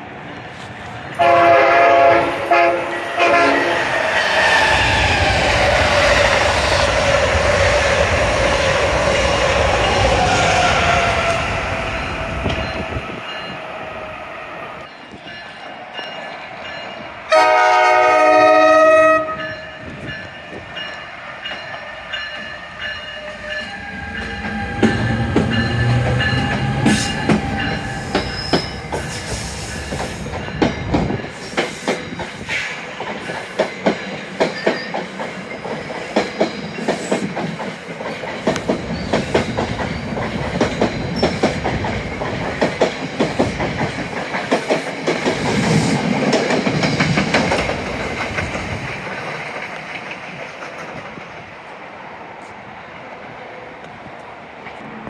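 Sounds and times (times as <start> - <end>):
train horn blast: 1.2 - 3.9, 17.3 - 19.6
train wheels clicking over rail joints: 24.1 - 51.8.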